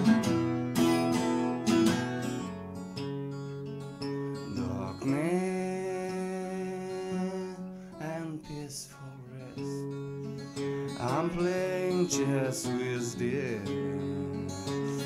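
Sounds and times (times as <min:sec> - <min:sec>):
finger-picked acoustic guitar: 0:00.0 - 0:15.0
man singing long notes: 0:04.5 - 0:09.9, 0:11.0 - 0:15.0.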